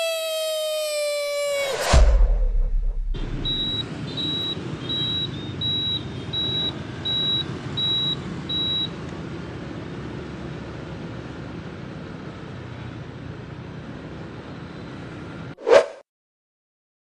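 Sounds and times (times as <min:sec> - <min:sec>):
high electronic beep: 0:01.9 - 0:08.8
motorbike riding in traffic: 0:03.4 - 0:15.6.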